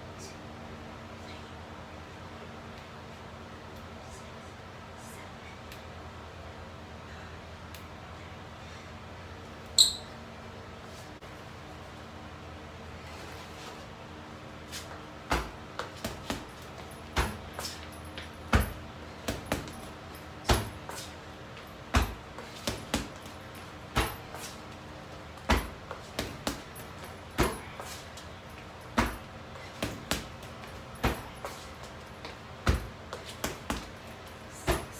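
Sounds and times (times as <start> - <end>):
punches thudding on heavy bag: 15.3 - 17.8, 18.4 - 20.9, 21.9 - 24.4, 25.4 - 27.8, 28.9 - 31.5, 32.6 - 33.9, 34.6 - 34.9.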